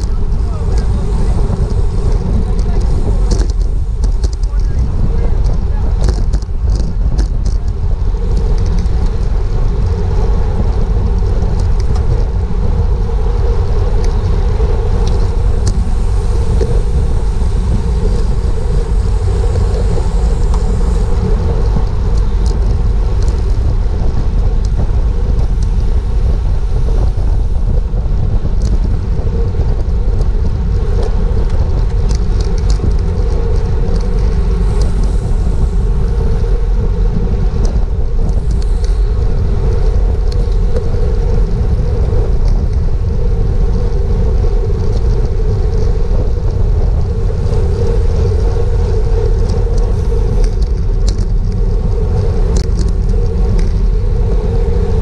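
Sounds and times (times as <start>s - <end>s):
steady hum: 0.0s - 55.0s
wind rumbling on microphone: 0.0s - 55.0s
faint ticks: 37.6s - 41.1s.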